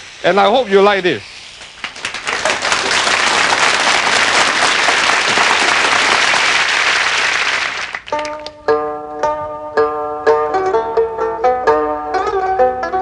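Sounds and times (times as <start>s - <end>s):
audience applauding: 1.6s - 8.5s
plucked-string music: 8.1s - 13.0s.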